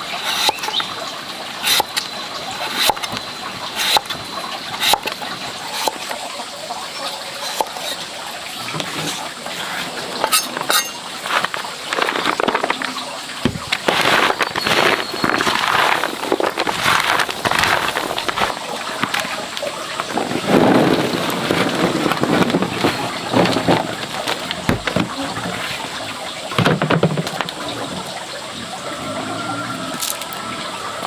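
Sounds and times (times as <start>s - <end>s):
fruit slices rustling on bamboo tray: 8.9s - 19.3s
fruit slices spilling into basket: 10.5s - 25.9s.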